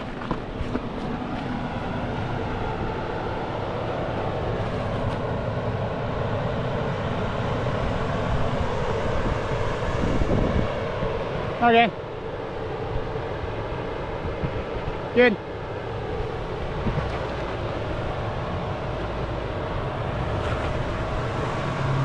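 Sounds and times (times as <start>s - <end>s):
tyre and trail noise: 0.0s - 2.5s.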